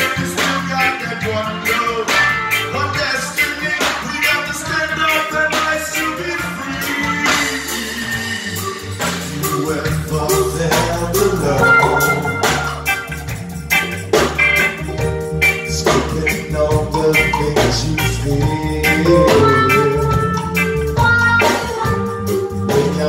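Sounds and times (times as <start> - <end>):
bass: 0.0 - 23.0
drum kit: 0.0 - 23.0
electric guitars: 0.0 - 23.0
keyboard: 0.0 - 23.0
hand percussion: 9.0 - 23.0.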